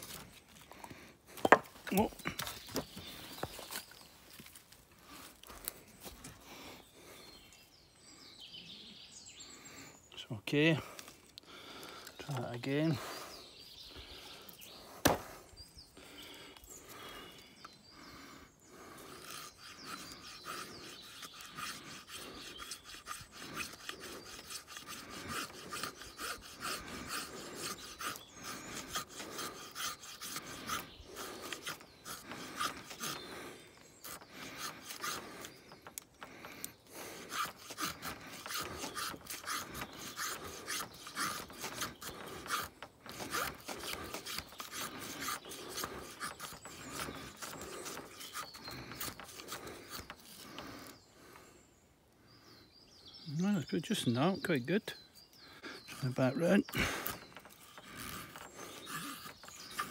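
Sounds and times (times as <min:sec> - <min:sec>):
knife scraping wood: 0:00.0 - 0:06.3, 0:14.5 - 0:15.4, 0:18.7 - 0:51.0, 0:55.6 - 0:59.9.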